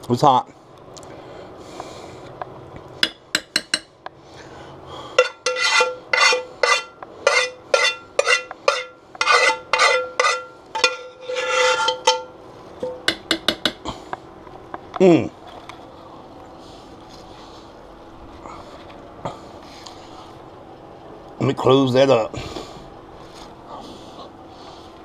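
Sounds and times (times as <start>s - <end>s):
metal utensil scraping a skillet: 5.2s - 13.0s.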